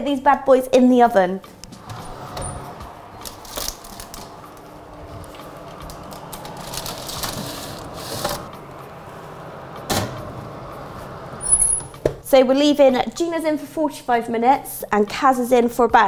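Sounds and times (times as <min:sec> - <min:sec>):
baking tray sliding: 0:01.6 - 0:12.0
paper rustling: 0:03.2 - 0:08.5.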